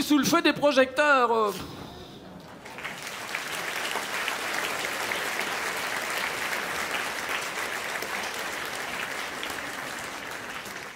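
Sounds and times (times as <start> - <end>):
audience applauding: 2.4 - 10.9.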